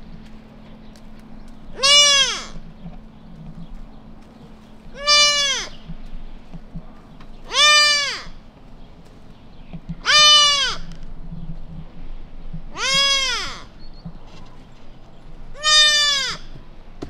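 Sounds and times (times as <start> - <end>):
fawn bleating: 1.7 - 2.6, 4.9 - 5.8, 7.5 - 8.4, 10.0 - 10.9, 12.7 - 13.7, 15.5 - 16.6.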